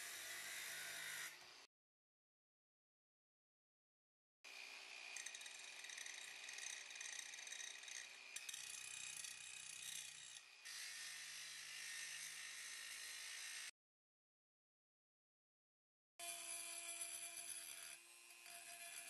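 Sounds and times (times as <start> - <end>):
angle grinder grinding metal: 0.0 - 1.4, 16.2 - 19.0.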